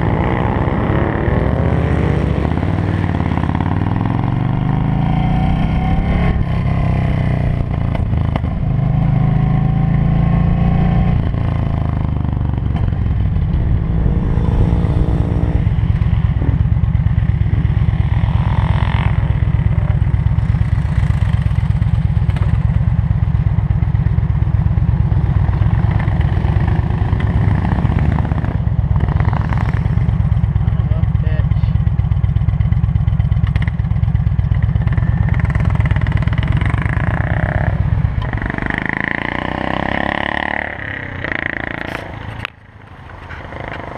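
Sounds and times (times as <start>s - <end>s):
motorcycle engine idling: 15.7s - 18.3s, 19.0s - 26.3s, 29.8s - 38.6s.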